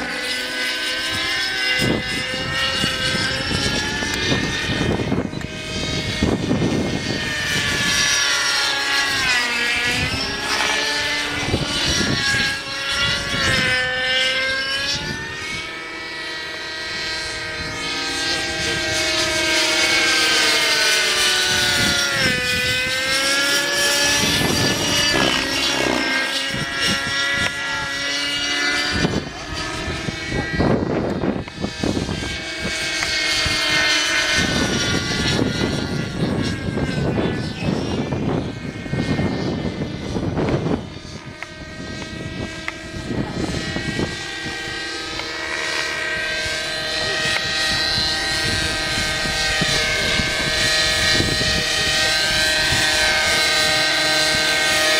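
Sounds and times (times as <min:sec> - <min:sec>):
model helicopter engine and rotor whine: 0:00.0 - 0:54.9
rotor blades rushing: 0:00.0 - 0:54.9.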